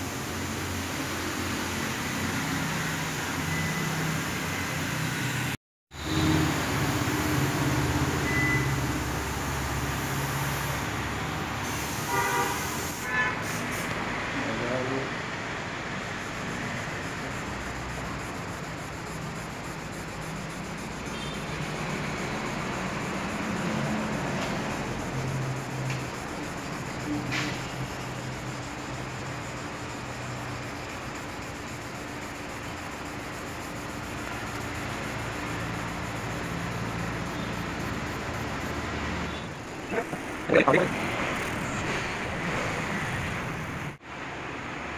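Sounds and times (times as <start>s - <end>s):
sandpaper wet-sanding metal: 16.2s - 39.0s.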